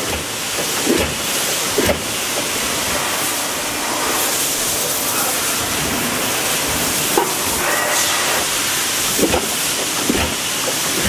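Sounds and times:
machine mechanical hiss: 0.0 - 11.0.

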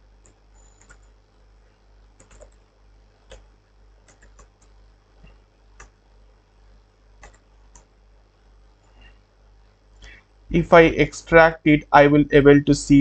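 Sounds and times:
low steady hum: 0.0 - 13.0
computer keyboard keystrokes: 0.2 - 1.1, 2.2 - 2.6, 3.3 - 4.8, 7.2 - 7.9.

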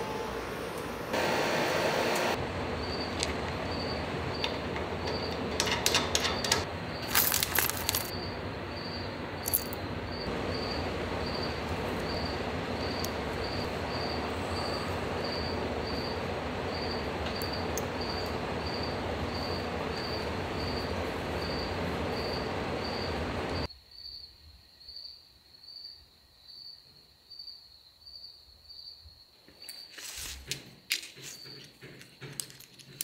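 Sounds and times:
steady shop hum: 0.0 - 23.7.

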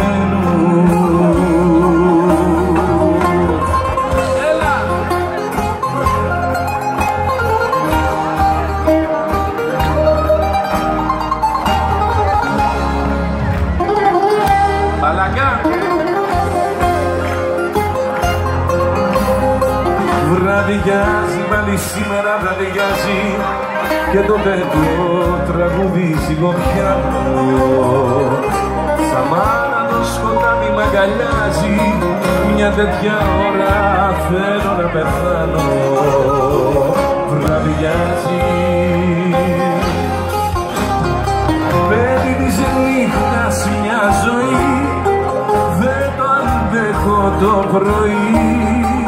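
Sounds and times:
man singing: 0.0 - 6.8, 19.8 - 49.0
live band playing: 0.0 - 49.0.

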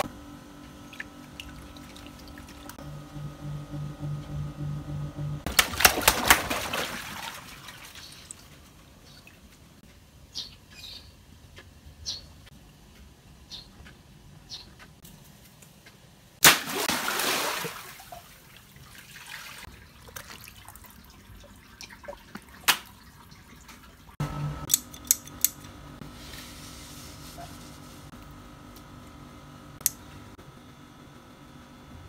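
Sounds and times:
water gushing and splashing: 5.5 - 8.1.

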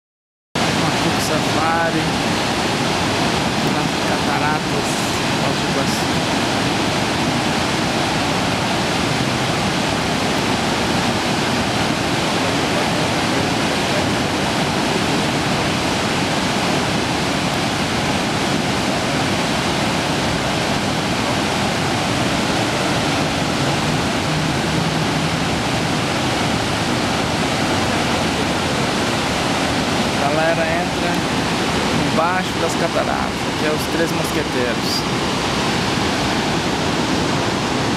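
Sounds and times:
waterfall rushing: 0.6 - 37.9.

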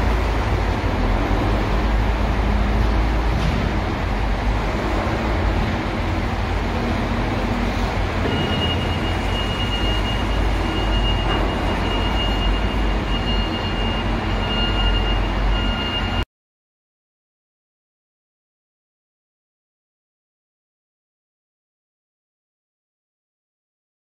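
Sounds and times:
machinery rumbling: 0.0 - 16.2.

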